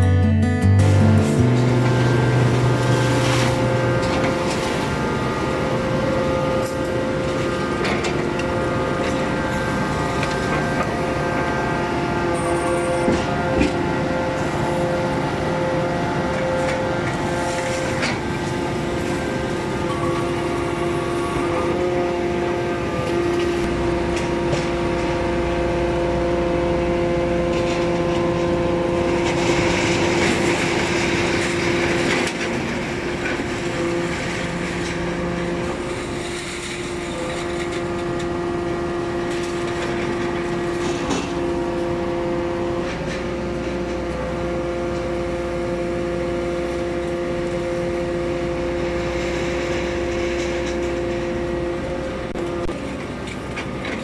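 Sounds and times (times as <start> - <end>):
deep hum: 0.0 - 7.7
hydraulic pump whine: 1.2 - 54.0.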